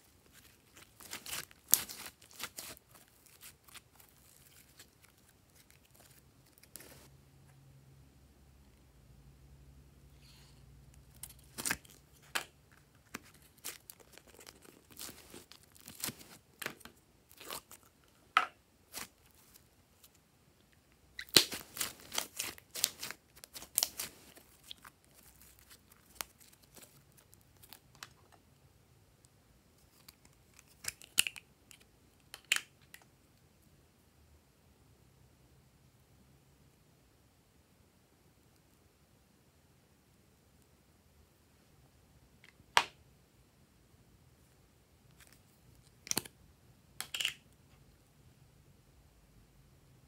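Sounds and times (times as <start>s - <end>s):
slime sticky crackles and pops: 0.3s - 6.9s, 21.2s - 28.2s.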